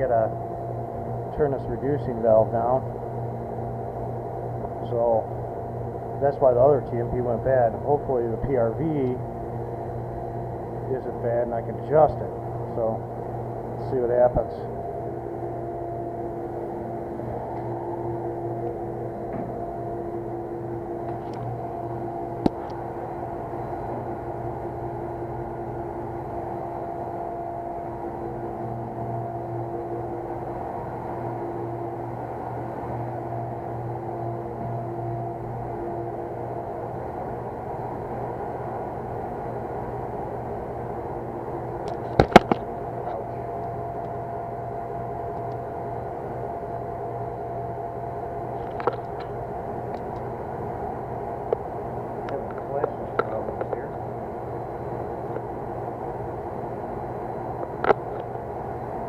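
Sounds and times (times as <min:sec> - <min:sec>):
steady mechanical hum: 0:00.0 - 0:59.0
faint steady tone: 0:17.8 - 0:39.8.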